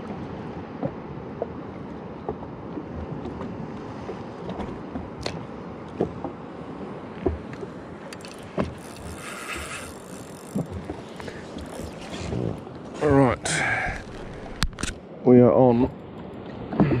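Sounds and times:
water lapping against hull: 0.0s - 17.0s.

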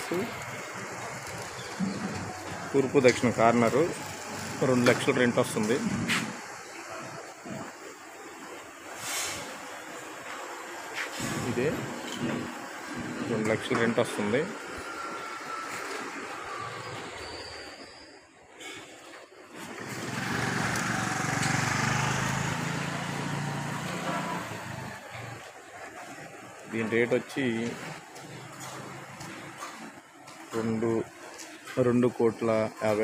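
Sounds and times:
street background hiss: 0.0s - 33.0s
vehicle engine passing by: 19.7s - 25.5s.

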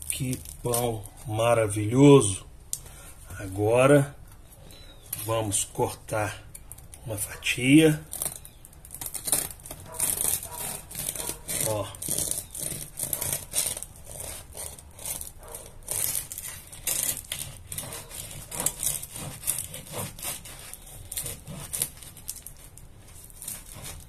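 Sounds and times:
knife sawing crusty bread: 7.1s - 24.0s.

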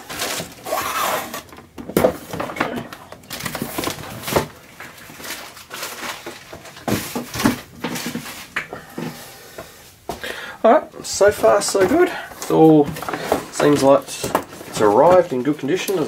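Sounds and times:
plastic packaging crinkling: 0.0s - 1.7s, 2.4s - 8.6s.

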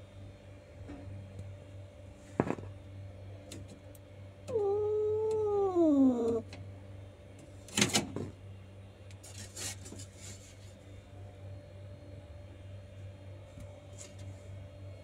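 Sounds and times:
faint steady hum: 0.0s - 15.0s
cat yowling: 4.5s - 6.5s.

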